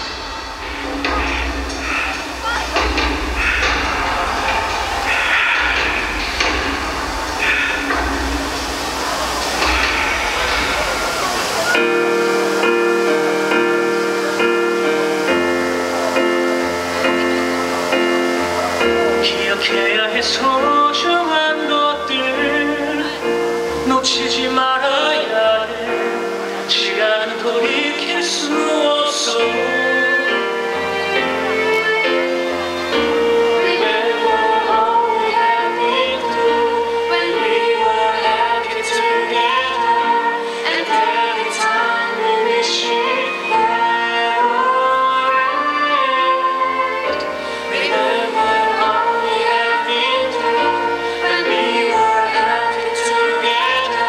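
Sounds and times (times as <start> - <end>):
held music chords: 0.0 - 54.0
woman singing: 19.0 - 31.2, 33.2 - 54.0.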